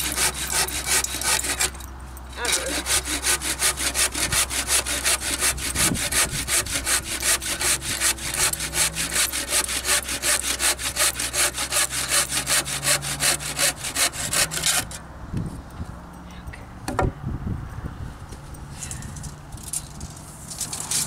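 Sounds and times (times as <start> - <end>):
handsaw cutting wooden board: 0.0 - 15.0.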